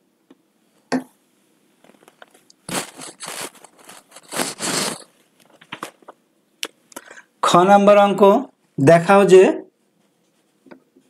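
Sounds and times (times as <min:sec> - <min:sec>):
paper rustling and scraping: 0:01.8 - 0:06.1
tissue paper wiping whiteboard: 0:02.7 - 0:05.1.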